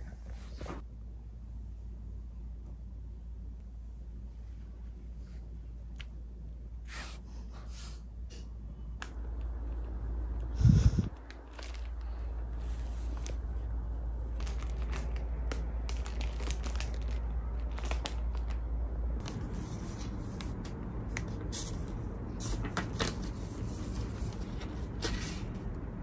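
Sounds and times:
wrapping paper crinkling: 11.1s - 25.7s.

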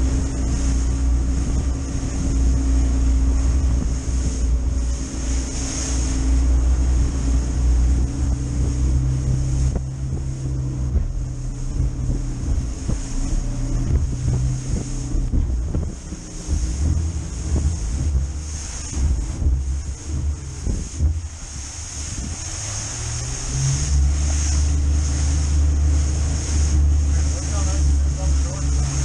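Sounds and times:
hull knocking on water: 0.0s - 29.0s
outboard motor running: 0.0s - 29.0s
wind buffeting microphone: 0.0s - 29.0s.

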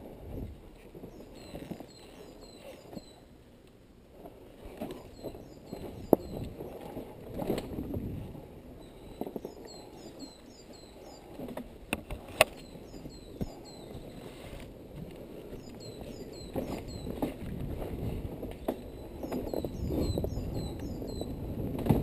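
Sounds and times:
bike knocks and clicks: 21.6s - 22.0s.

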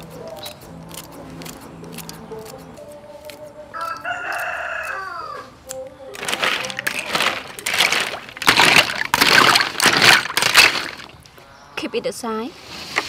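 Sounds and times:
rooster crowing: 3.7s - 5.6s
shells clattering in metal bowl: 6.2s - 11.2s.

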